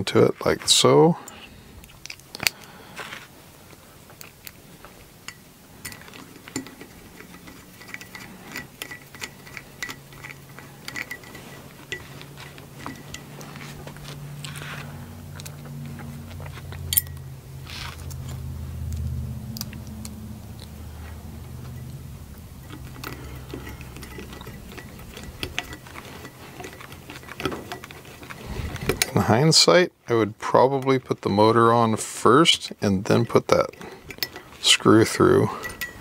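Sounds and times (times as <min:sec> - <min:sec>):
faint low hum: 0:00.0 - 0:36.0
screwdriver and metal parts clinking: 0:05.2 - 0:17.2, 0:21.6 - 0:36.0.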